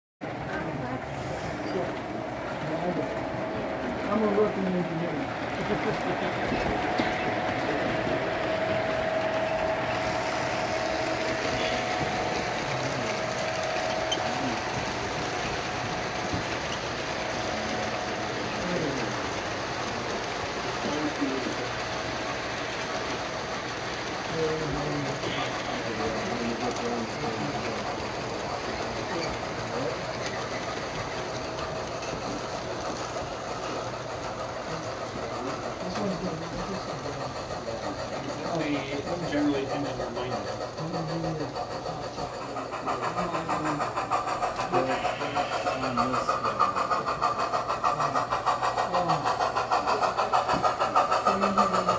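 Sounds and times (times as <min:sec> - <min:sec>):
model train rolling rumble: 0:00.2 - 0:51.9.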